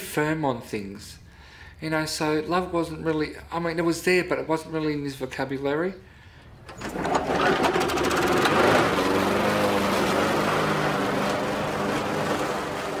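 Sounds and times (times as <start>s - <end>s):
lawn mower engine running: 6.5s - 13.0s.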